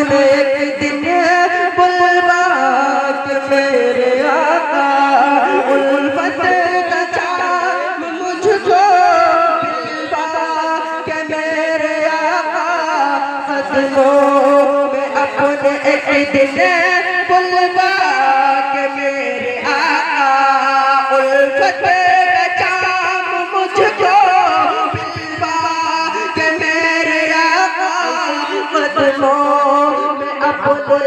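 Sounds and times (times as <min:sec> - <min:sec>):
man singing unaccompanied: 0:00.0 - 0:31.0.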